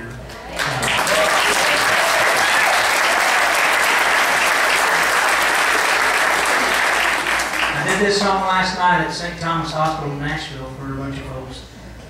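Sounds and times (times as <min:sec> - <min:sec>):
audience applauding: 0:00.5 - 0:08.1.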